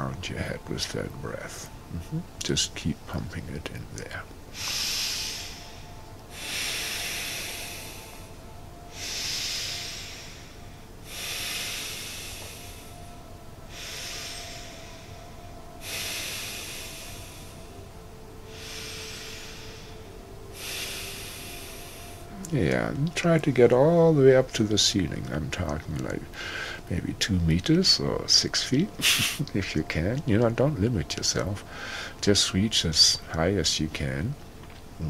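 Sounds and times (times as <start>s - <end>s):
man breathing deeply: 4.4s - 22.5s, 26.3s - 26.9s, 31.6s - 32.2s.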